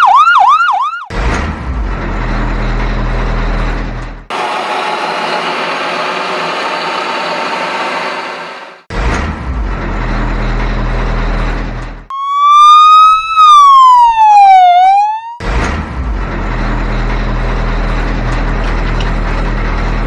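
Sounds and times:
siren-like tone rising and falling: 0:00.0 - 0:01.1, 0:12.1 - 0:15.4
engine-like rumble: 0:01.1 - 0:12.1, 0:15.4 - 0:20.0.

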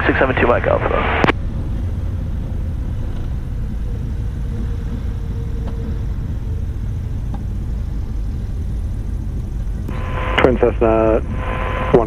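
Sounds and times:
aircraft engines low rumble: 0:00.0 - 0:12.0
faint steady hum: 0:00.0 - 0:12.0.

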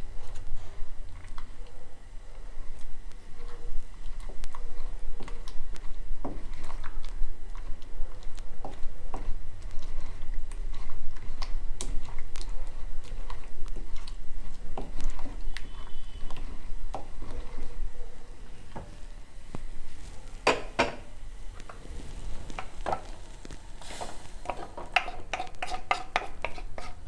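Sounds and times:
pestle pounding in mortar: 0:24.5 - 0:27.0.

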